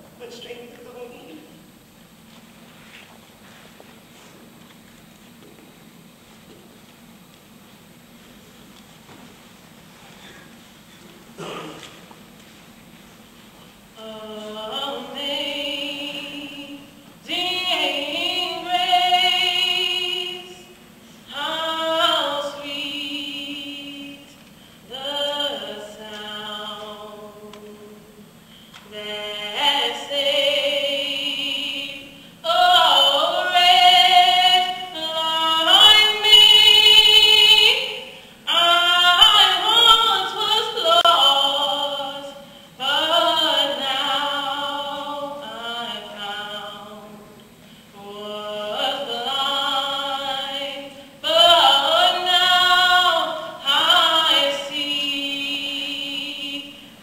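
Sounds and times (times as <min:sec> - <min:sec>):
woman singing unaccompanied: 0:14.0 - 0:57.0
singer breathing: 0:28.4 - 0:28.9, 0:47.6 - 0:48.0.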